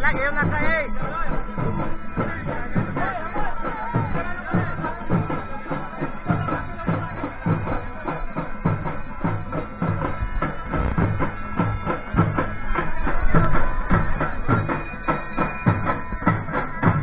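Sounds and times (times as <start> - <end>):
fast steady drumming: 0.0 - 17.0
sustained melodic line: 5.0 - 17.0.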